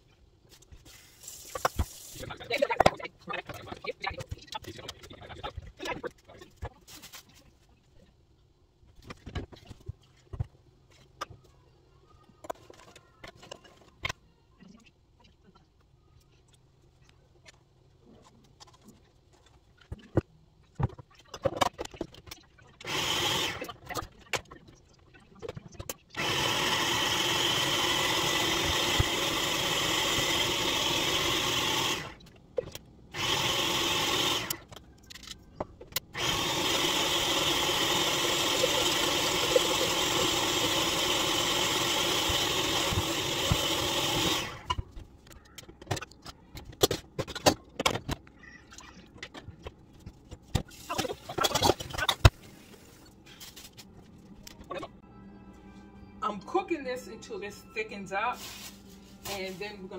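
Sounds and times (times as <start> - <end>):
blender running: 22.8 - 23.7, 26.2 - 32.2, 33.1 - 34.6, 36.1 - 44.7.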